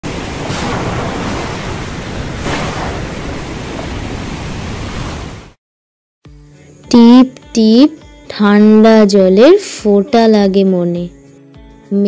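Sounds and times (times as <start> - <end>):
heavy rain pouring: 0.0 - 5.6.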